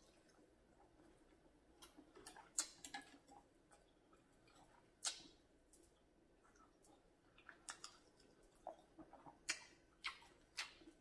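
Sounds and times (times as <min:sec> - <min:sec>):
chewing: 0:00.0 - 0:11.0
wet mouth clicks: 0:05.0 - 0:05.3, 0:08.7 - 0:10.9.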